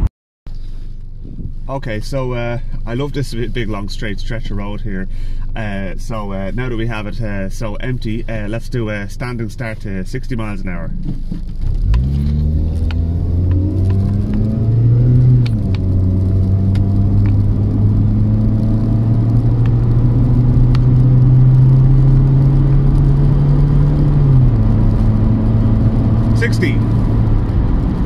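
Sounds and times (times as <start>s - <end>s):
car engine accelerating: 10.9s - 28.0s.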